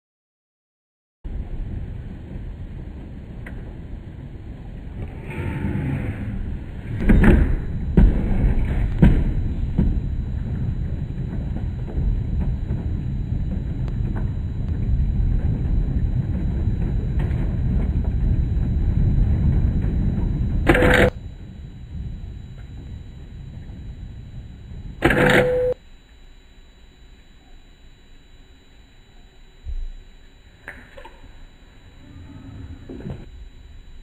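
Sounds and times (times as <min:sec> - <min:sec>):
low rolling thunder rumble: 0:01.3 - 0:25.0.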